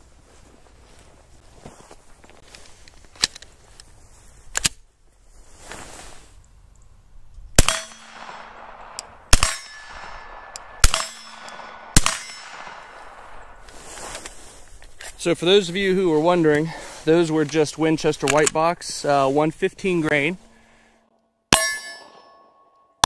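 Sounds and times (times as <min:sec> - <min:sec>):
steel target clanging: 0:07.6 - 0:08.4, 0:09.3 - 0:12.8, 0:21.5 - 0:22.7
suppressed pistol shots: 0:07.6 - 0:13.6.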